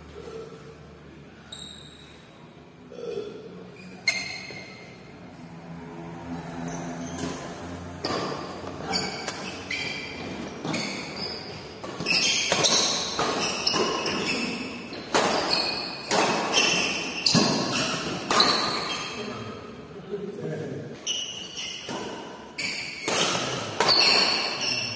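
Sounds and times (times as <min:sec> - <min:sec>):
shoes squeaking on floor: 0:01.5 - 0:02.2, 0:03.7 - 0:05.0, 0:06.7 - 0:19.4, 0:21.0 - 0:24.9
racquet hitting shuttlecock: 0:07.1 - 0:19.1, 0:21.4 - 0:24.9.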